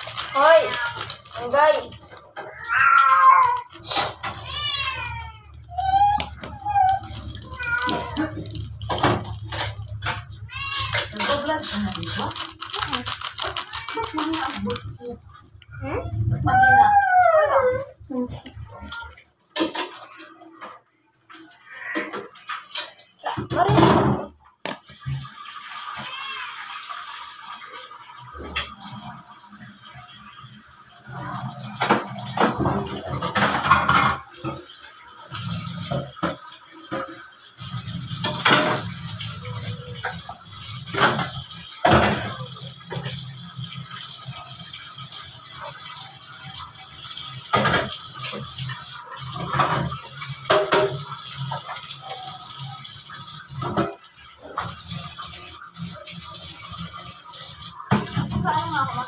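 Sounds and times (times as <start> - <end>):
plastic sachets crinkling and tearing: 0.0 - 5.2, 5.8 - 15.7
water boiling in a pot: 0.0 - 59.0.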